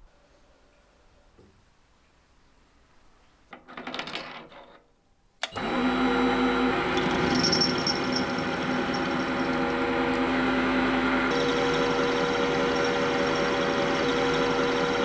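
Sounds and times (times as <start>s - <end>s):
metal lathe motor hum and whine: 5.6s - 15.0s.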